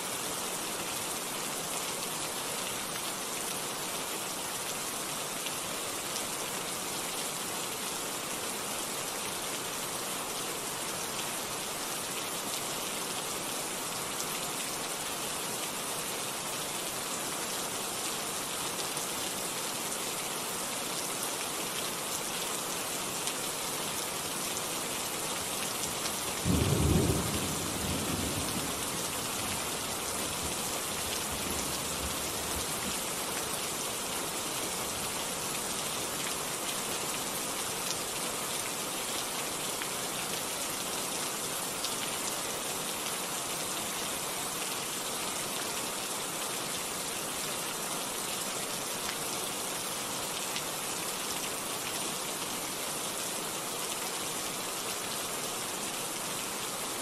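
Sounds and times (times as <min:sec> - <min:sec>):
steady rain falling: 0:00.0 - 0:57.0.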